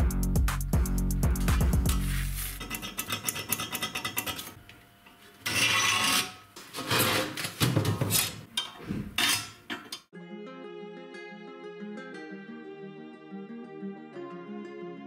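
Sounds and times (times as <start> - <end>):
metal tools scraping on steel: 2.5 - 4.6, 5.4 - 10.1.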